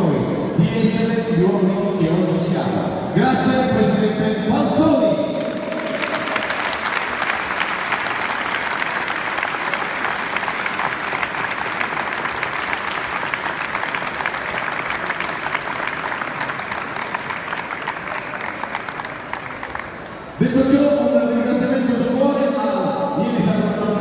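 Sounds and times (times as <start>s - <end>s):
crowd applauding: 5.3s - 20.8s.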